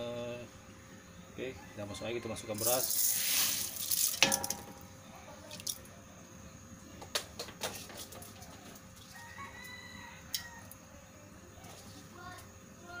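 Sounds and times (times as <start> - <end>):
low steady hum: 0.0 - 13.0
rooster crowing: 1.5 - 2.8, 9.0 - 10.8.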